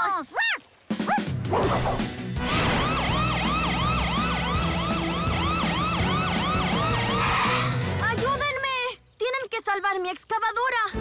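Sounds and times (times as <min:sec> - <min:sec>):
background music: 0:00.8 - 0:09.4, 0:10.8 - 0:11.0
police siren wailing: 0:02.5 - 0:07.8.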